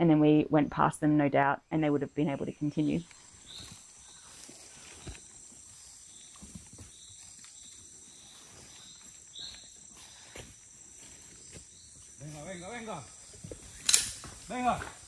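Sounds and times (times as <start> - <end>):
high insect buzz: 2.6 - 15.0
footsteps in dry leaves: 3.1 - 15.0.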